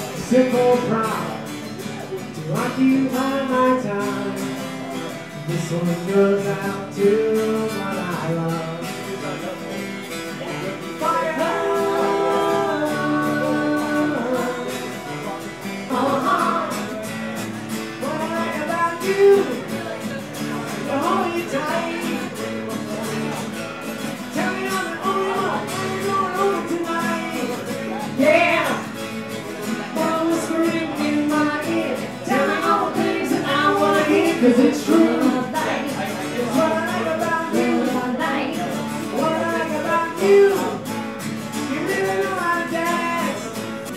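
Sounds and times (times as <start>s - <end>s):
acoustic guitars strummed: 0.0s - 43.9s
people singing: 10.5s - 17.2s, 18.0s - 23.4s, 24.1s - 43.9s.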